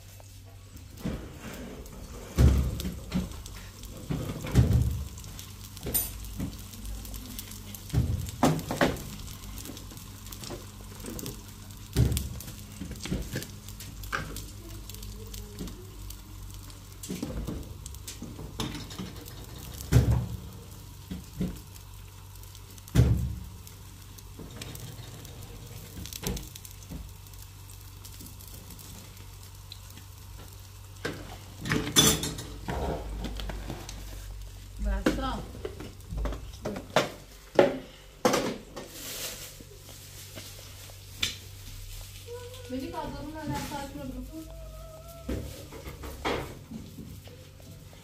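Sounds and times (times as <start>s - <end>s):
pots and utensils clinking: 1.0s - 6.8s, 17.0s - 20.2s, 31.0s - 33.8s.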